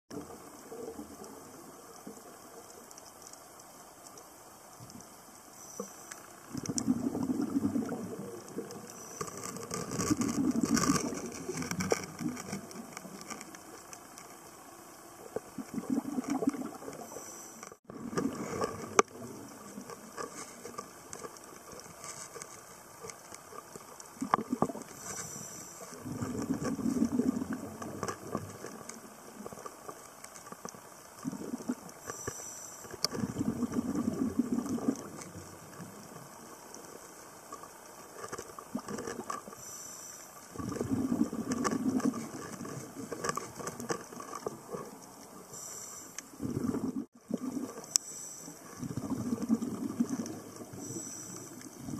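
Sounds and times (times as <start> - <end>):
regulator hiss on inhale: 5.5 - 9.7, 16.9 - 21.2, 24.6 - 27.5, 31.7 - 33.3, 39.4 - 43.2, 45.4 - 46.8, 47.6 - 49.1, 50.0 - 51.9
exhaled bubbles rushing: 6.5 - 8.9, 9.5 - 12.9, 15.4 - 17.2, 17.8 - 19.8, 26.0 - 28.6, 31.2 - 31.9, 33.1 - 36.1, 40.5 - 43.1, 46.3 - 47.8, 48.8 - 50.9.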